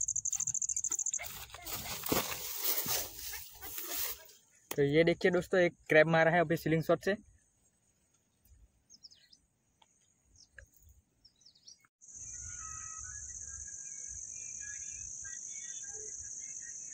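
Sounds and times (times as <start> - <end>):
faint chirping calls: 0.0 - 2.2, 7.3 - 16.9
crickets trilling: 0.0 - 4.0, 12.0 - 16.9
faint bird chirps: 8.3 - 16.9.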